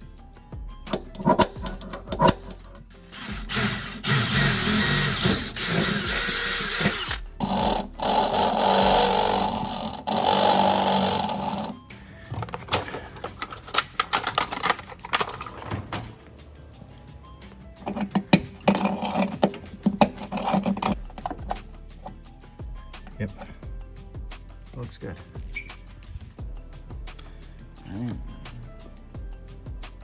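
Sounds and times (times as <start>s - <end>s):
cordless drill boring through metal: 3.1s - 11.8s.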